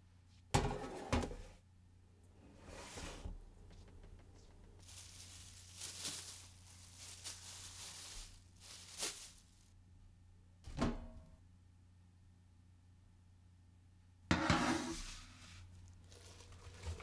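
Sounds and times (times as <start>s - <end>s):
plastic bags rustling: 4.8s - 9.7s, 15.7s - 17.0s.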